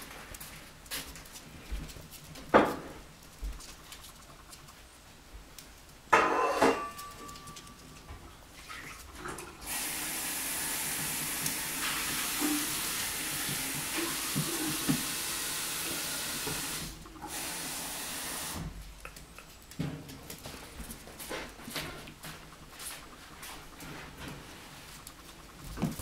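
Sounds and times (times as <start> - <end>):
water tap running: 9.5 - 18.7.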